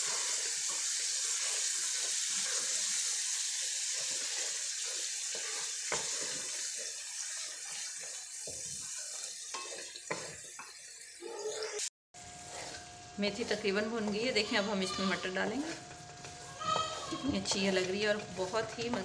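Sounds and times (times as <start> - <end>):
food sizzling in hot oil: 0.0 - 13.6
wooden spatula scraping pan: 3.9 - 10.3, 12.3 - 19.0.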